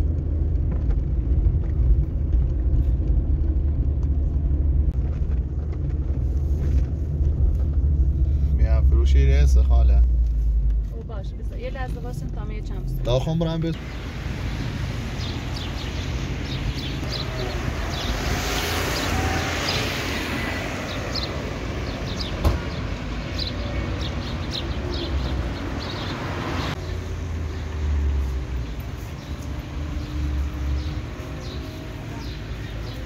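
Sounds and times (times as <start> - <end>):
vehicle rumble: 0.0 - 33.0
vehicle passing: 11.5 - 33.0.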